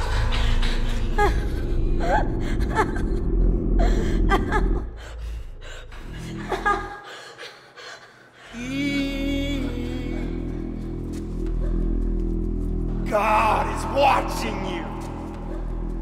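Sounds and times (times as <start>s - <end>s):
low rumbling drone: 0.0s - 6.9s
woman sobbing and gasping: 0.0s - 10.2s.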